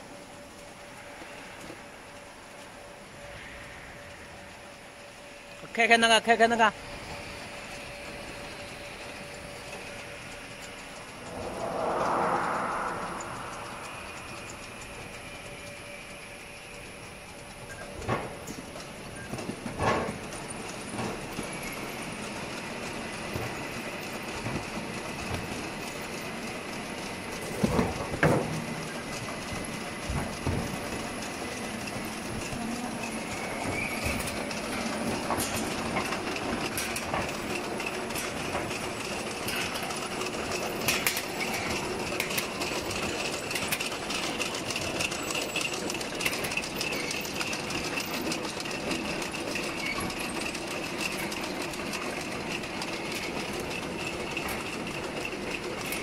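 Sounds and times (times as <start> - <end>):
conveyors clattering and ticking: 0.0 - 56.0
steady machine noise: 6.3 - 18.2.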